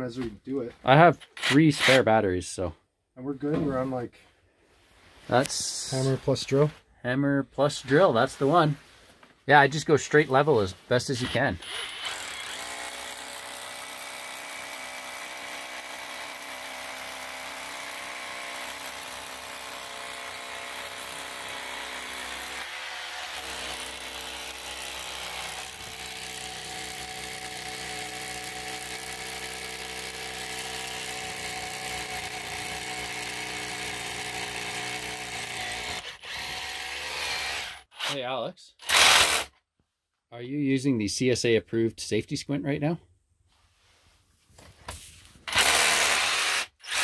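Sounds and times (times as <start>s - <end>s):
hammer drill boring into concrete: 1.2s - 2.1s, 11.2s - 38.2s, 38.8s - 39.5s, 45.5s - 47.0s.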